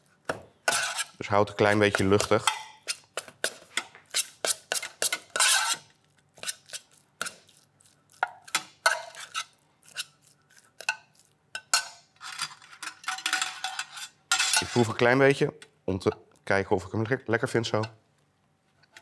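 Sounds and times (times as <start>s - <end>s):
metal spoon scraping steel container: 0.7s - 3.1s, 4.1s - 6.8s, 11.6s - 15.1s.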